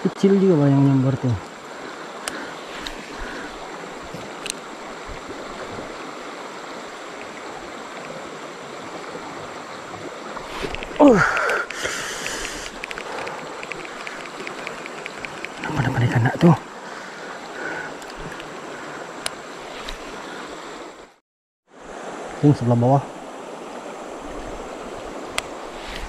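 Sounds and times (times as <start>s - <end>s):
river water rushing over rapids: 0.7s - 21.0s
bright hiss with quick ticking: 10.5s - 15.8s.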